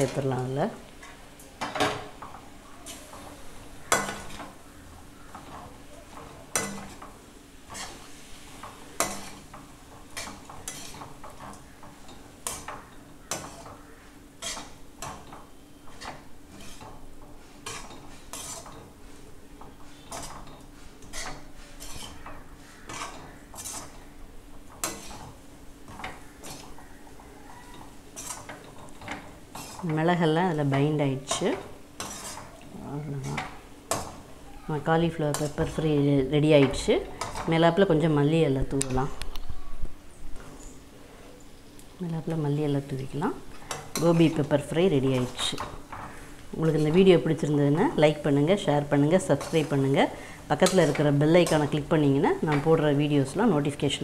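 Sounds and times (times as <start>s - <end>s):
metal ladle clinking and scraping: 17.6s - 18.9s, 20.0s - 24.0s, 31.3s - 32.6s.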